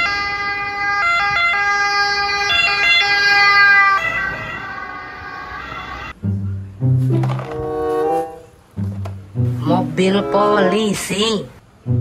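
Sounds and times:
ambulance two-tone siren: 0:00.0 - 0:06.2.

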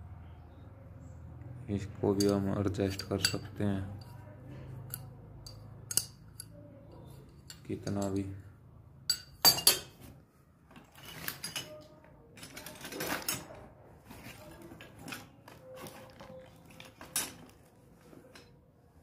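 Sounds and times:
light rattles and scrapes: 0:09.9 - 0:18.6.

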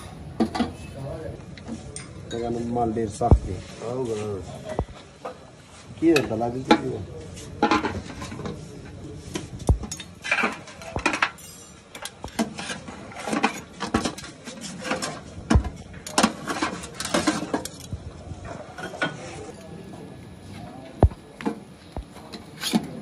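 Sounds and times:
low thuds: 0:03.3 - 0:03.5.

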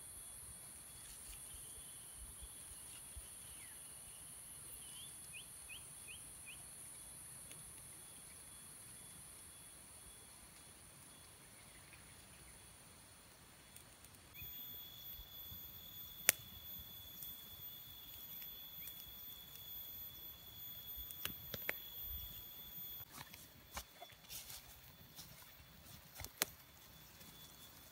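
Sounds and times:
campfire crackling: 0:04.6 - 0:27.9
high-pitched insect buzzing: 0:14.4 - 0:25.6
sharp pops from fire: 0:15.5 - 0:17.3, 0:20.6 - 0:22.4, 0:26.2 - 0:26.6.

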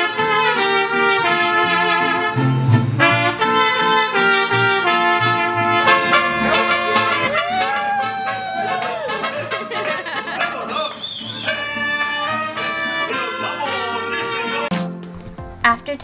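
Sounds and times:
trumpet melody: 0:00.0 - 0:15.0
strummed guitars: 0:00.0 - 0:15.7
deep bass guitar line: 0:02.1 - 0:03.6, 0:05.2 - 0:10.7.

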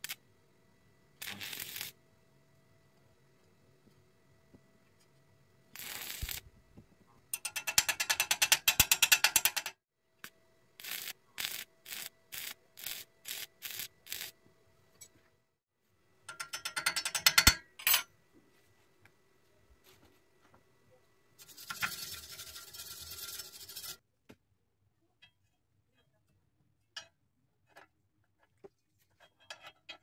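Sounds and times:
welding arc crackling: 0:01.2 - 0:02.0, 0:05.8 - 0:06.5, 0:10.8 - 0:14.4.

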